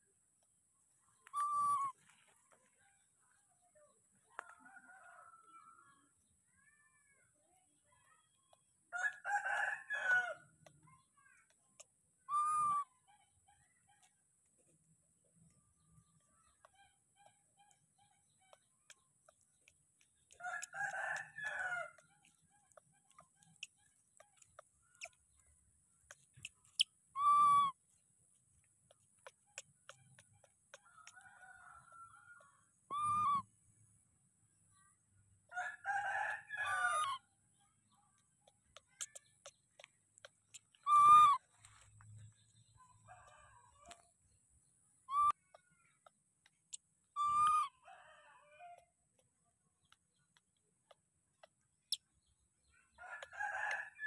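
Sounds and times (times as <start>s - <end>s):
baby macaque calls: 1.3s - 2.0s, 12.2s - 12.9s, 26.4s - 27.8s, 32.9s - 33.4s, 36.9s - 37.2s, 40.5s - 41.4s, 45.1s - 45.4s, 47.1s - 47.7s.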